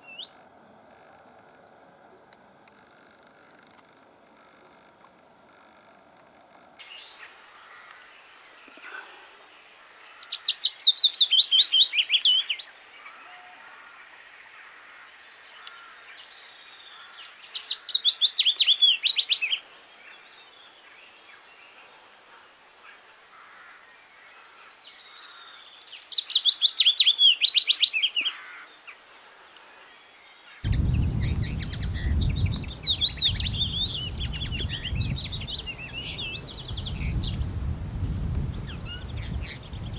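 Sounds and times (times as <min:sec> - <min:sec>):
warbler singing: 0:29.9 - 0:39.9
wind rumble on microphone: 0:30.6 - 0:39.9.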